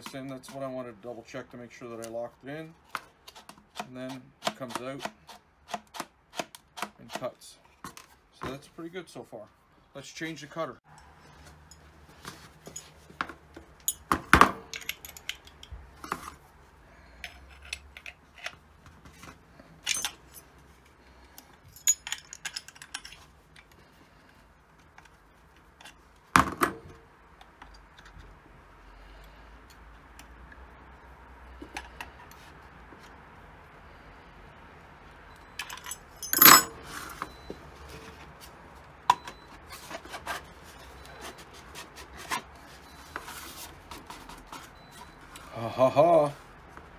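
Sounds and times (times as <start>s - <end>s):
steel wrenches clinking: 13.8s - 16.4s, 19.8s - 20.5s, 21.7s - 23.3s, 35.5s - 37.5s.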